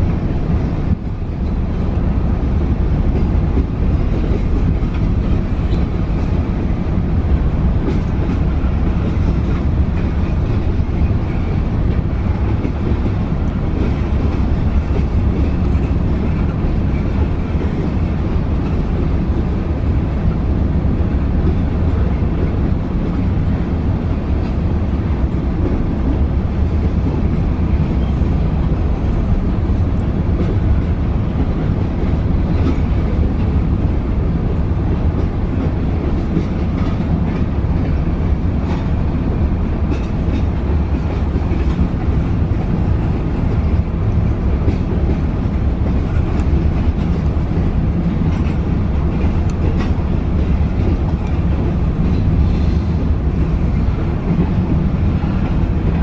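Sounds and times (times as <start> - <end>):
train wheels rumbling on rail: 0.0 - 56.0
wheels clicking over rail joints: 29.6 - 56.0.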